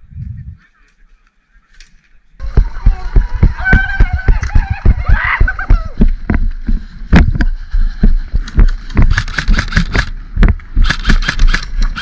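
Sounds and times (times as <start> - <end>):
wind buffeting microphone: 0.0 - 0.7
running footsteps thudding: 2.4 - 10.9.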